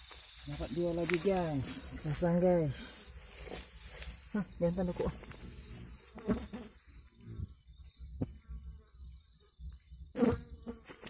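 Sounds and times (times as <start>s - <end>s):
net rustling in dry grass: 0.0s - 5.6s
crickets trilling: 0.0s - 11.0s.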